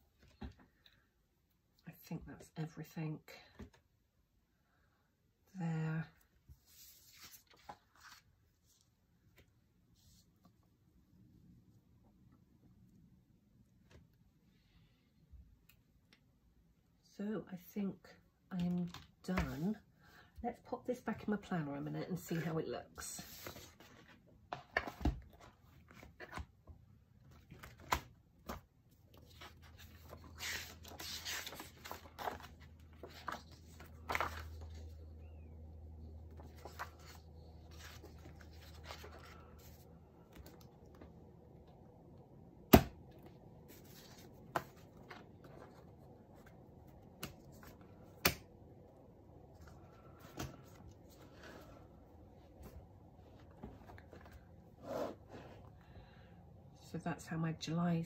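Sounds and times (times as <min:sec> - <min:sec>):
paper rustling and sliding: 0:27.5 - 0:34.9, 0:36.3 - 0:39.8.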